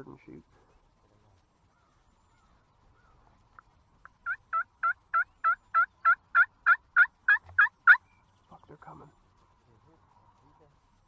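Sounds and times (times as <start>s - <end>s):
turkey yelps: 4.2s - 8.1s.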